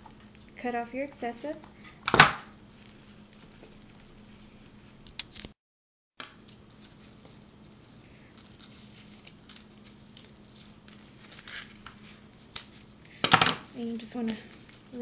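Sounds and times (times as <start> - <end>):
hands rustling a ribbon bow: 2.7 - 5.0, 6.5 - 13.1.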